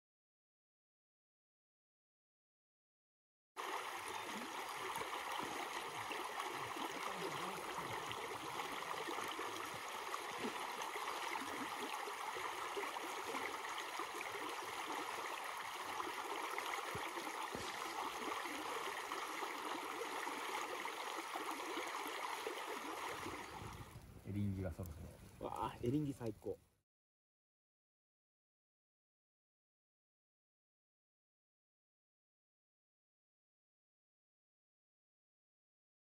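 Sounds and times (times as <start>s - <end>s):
stream rushing over pebbles: 3.6s - 24.8s.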